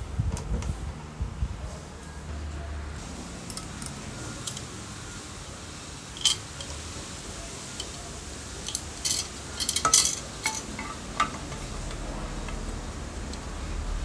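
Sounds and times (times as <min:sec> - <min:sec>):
metal parts clicking and clinking: 0:03.5 - 0:04.7, 0:06.2 - 0:06.8, 0:07.8 - 0:11.6.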